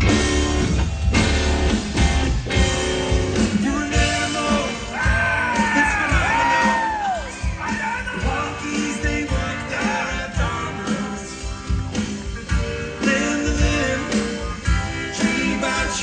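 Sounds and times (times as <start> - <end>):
drum beat: 0.0 - 13.9
electric guitar: 0.0 - 16.0
man singing: 3.4 - 11.8, 12.8 - 16.0.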